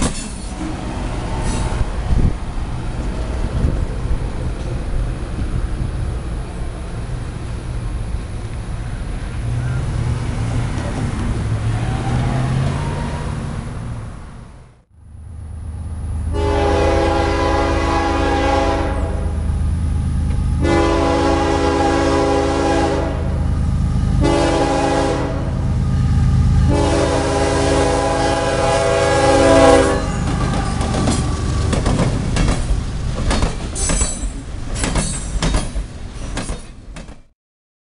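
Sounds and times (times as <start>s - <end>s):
wheels clacking over rail joints: 0.0s - 6.4s, 7.0s - 13.3s, 29.9s - 37.3s
freight train rumble: 0.0s - 37.3s
locomotive air horn blasts: 16.3s - 19.5s, 20.6s - 23.5s, 24.1s - 30.8s.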